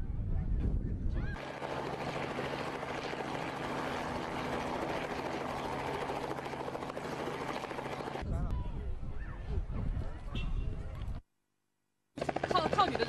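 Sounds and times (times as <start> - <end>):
helicopter hovering: 1.3 - 8.3, 12.2 - 13.0.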